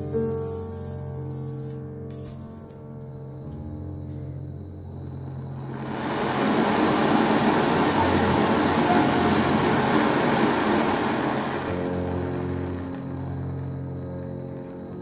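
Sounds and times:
gas stove burner hissing: 0:05.0 - 0:15.0.

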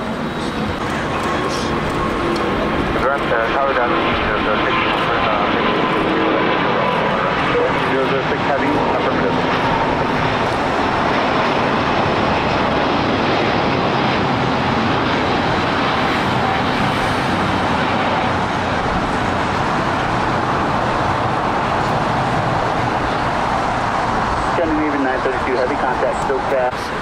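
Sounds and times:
jet engines rushing: 0:00.0 - 0:27.0.

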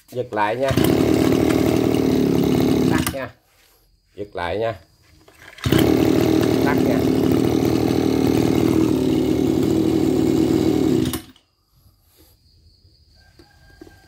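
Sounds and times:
brush cutter engine running: 0:00.3 - 0:03.4, 0:05.3 - 0:11.4.

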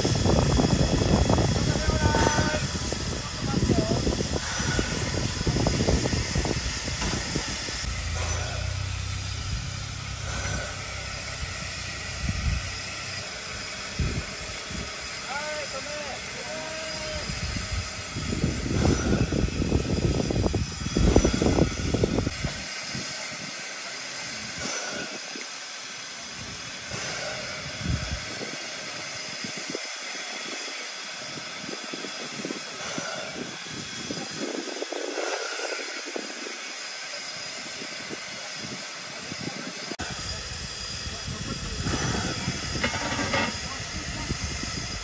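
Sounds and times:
loud low rumble: 0:00.0 - 0:14.8
steam hissing from locomotive: 0:00.0 - 0:45.0.

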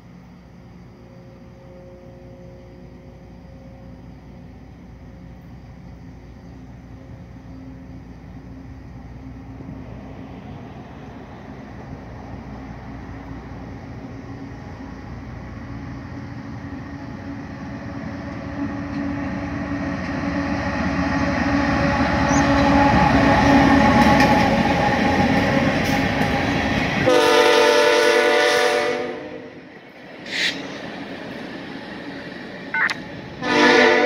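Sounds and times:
diesel locomotive rumbling past: 0:00.0 - 0:34.0
locomotive air horn: 0:27.0 - 0:29.6, 0:33.4 - 0:34.0.

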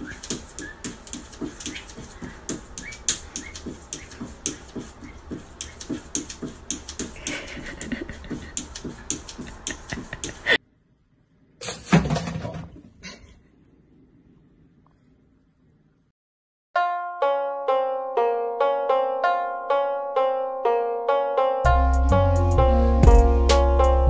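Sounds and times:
cat paws tapping on mirror: 0:00.0 - 0:10.5.

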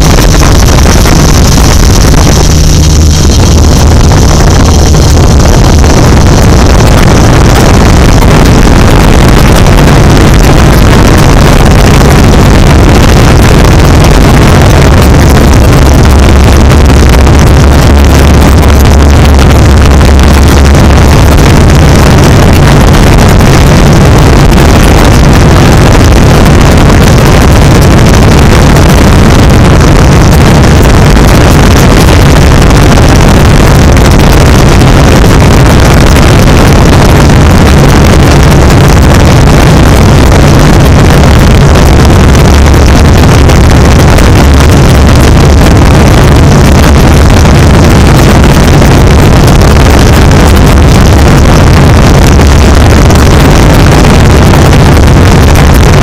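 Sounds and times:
boat engine drone: 0:00.0 - 0:54.1.

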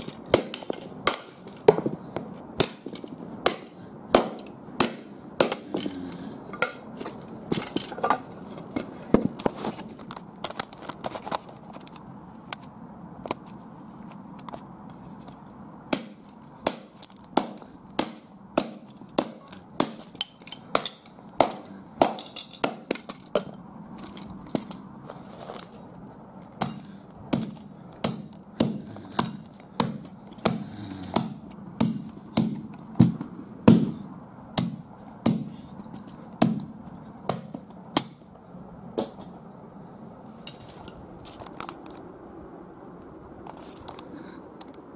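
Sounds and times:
hatchet smashing plastic toy: 0:16.0 - 0:24.8.

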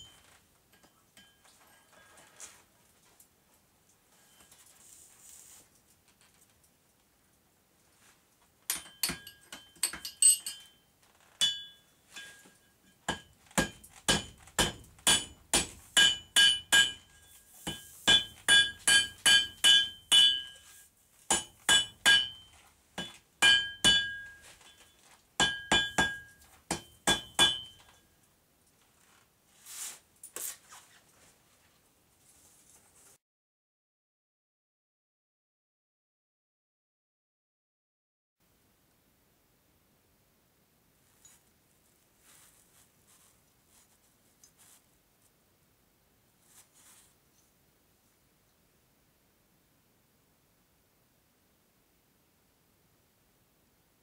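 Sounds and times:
hammer striking metal on anvil: 0:08.7 - 0:10.8, 0:11.4 - 0:20.6, 0:21.3 - 0:24.6, 0:25.4 - 0:28.0.

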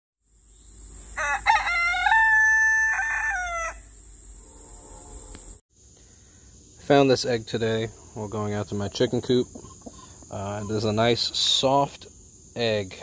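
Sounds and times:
high insect drone: 0:00.2 - 0:13.0
rooster crowing: 0:01.1 - 0:05.6.

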